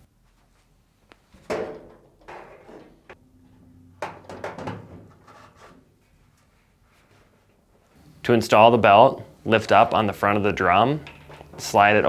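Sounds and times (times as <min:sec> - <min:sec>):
metal knocks and scrapes: 0:04.0 - 0:05.9.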